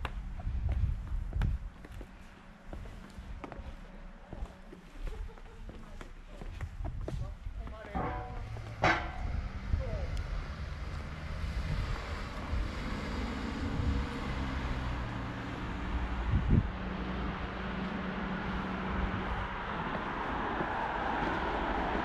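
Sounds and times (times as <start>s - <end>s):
motor vehicle running: 7.7s - 22.0s.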